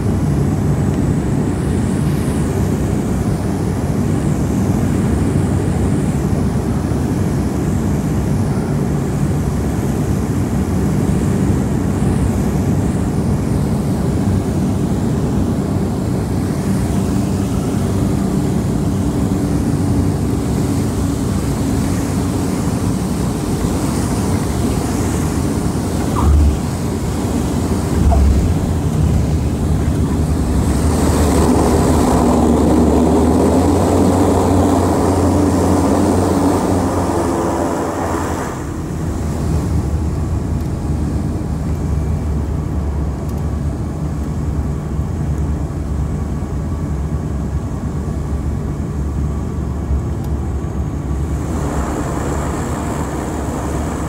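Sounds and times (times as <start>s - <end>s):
propeller engines droning: 0.0s - 54.0s
low thumps: 27.8s - 31.2s.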